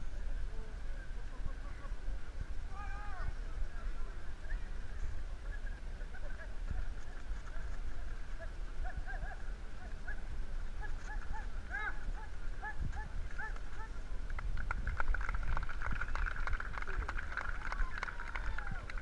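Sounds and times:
crowd clapping and shouting: 0:12.9 - 0:19.0.

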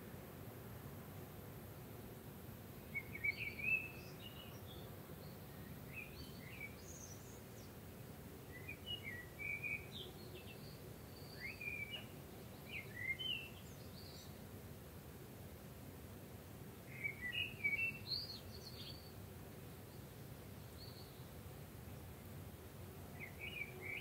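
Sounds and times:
faint steady hiss: 0:00.0 - 0:24.0
small birds chirping: 0:03.0 - 0:07.8, 0:08.4 - 0:14.5, 0:16.8 - 0:22.3, 0:23.1 - 0:24.0.

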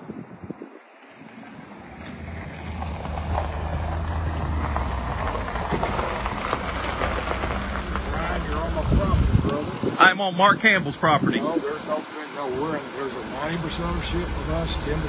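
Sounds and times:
wind on microphone: 0:00.0 - 0:11.9
truck engine running: 0:01.2 - 0:15.0.

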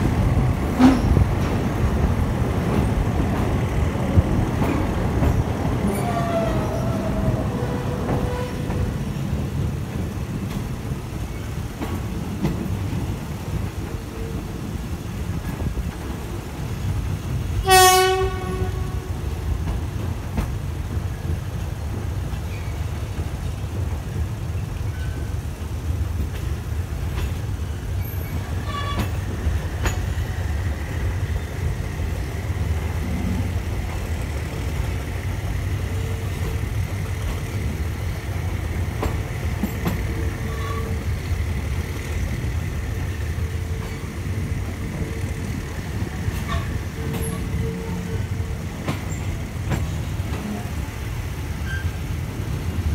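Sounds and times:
train wheels rumbling: 0:00.0 - 0:52.9
train horn blast: 0:05.9 - 0:08.9, 0:17.6 - 0:19.2.

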